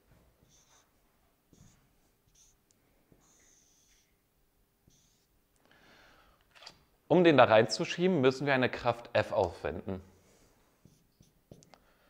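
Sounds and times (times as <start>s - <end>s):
whiteboard marker squeaking: 0.5s - 0.8s, 1.5s - 2.6s, 3.2s - 4.1s, 4.9s - 5.3s, 10.9s - 11.7s.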